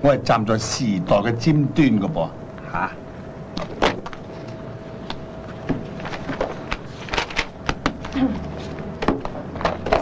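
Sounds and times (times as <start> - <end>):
faint hum: 0.0 - 10.0
papers rustling: 3.6 - 10.0.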